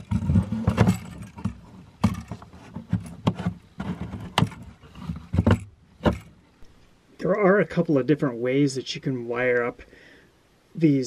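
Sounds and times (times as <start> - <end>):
low bumping and rustling: 0.0 - 6.7.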